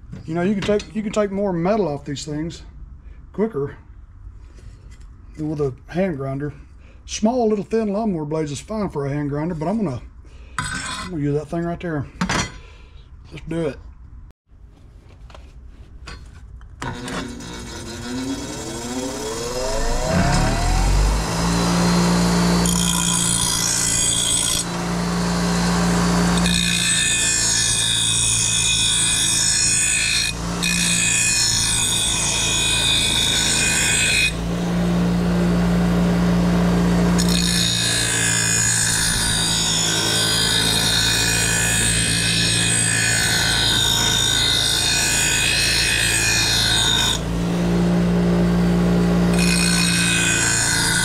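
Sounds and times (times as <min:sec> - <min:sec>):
bench grinder motor hum: 0:16.8 - 0:51.0
metal blade grinding: 0:16.8 - 0:51.0.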